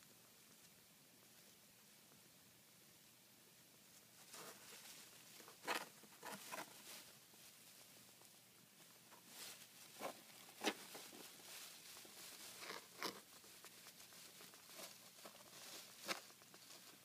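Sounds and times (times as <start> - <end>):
hedgehog rustling in bedding: 3.9 - 17.0.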